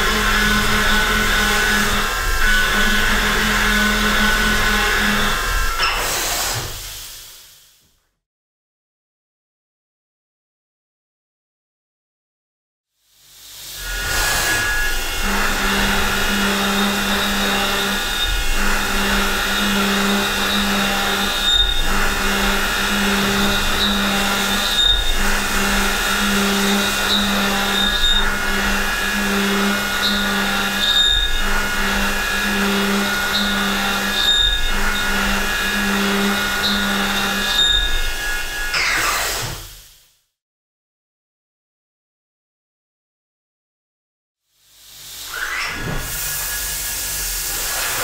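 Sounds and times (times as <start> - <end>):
milling cutter cutting steel: 0.0 - 6.7, 13.9 - 39.7.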